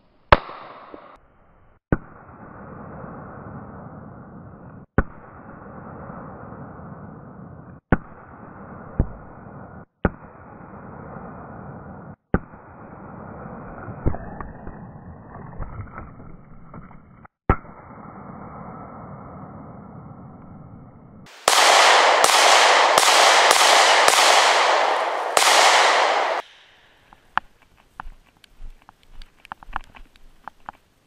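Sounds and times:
pistol shots: 0:21.3 - 0:26.8.

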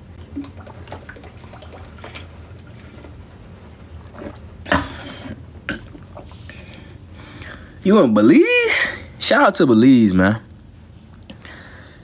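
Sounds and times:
person gulping water: 0:00.2 - 0:03.2, 0:04.0 - 0:06.4.

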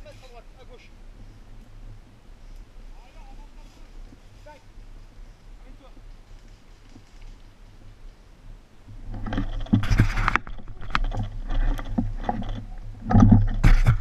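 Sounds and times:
leaves and stems rustling: 0:00.0 - 0:14.0
small knocks and clicks: 0:09.1 - 0:14.0.

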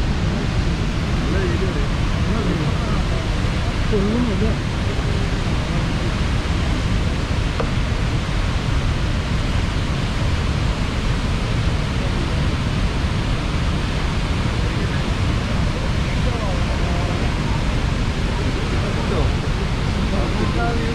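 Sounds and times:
waterfall rushing: 0:00.0 - 0:20.9.

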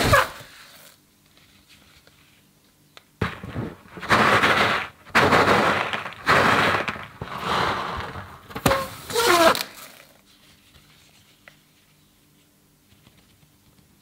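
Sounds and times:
balloon snapping: 0:03.2 - 0:10.0.

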